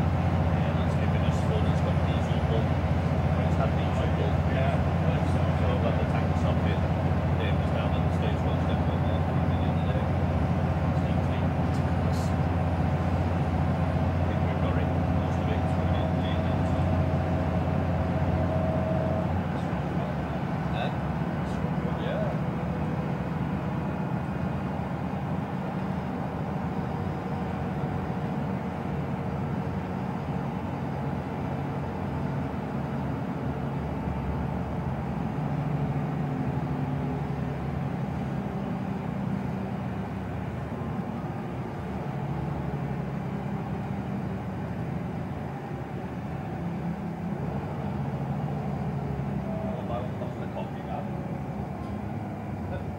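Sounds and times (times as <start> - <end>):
bus engine drone: 0.0 - 52.9
road noise: 0.0 - 52.9.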